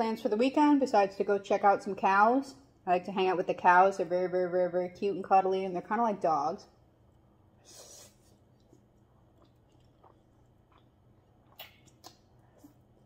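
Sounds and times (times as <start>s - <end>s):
soft chewing: 7.0s - 13.0s
mouth clicks and smacks: 8.5s - 13.0s.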